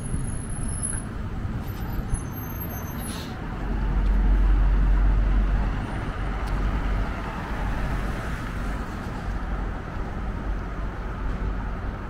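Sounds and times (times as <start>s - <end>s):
hiss of traffic: 0.0s - 3.8s.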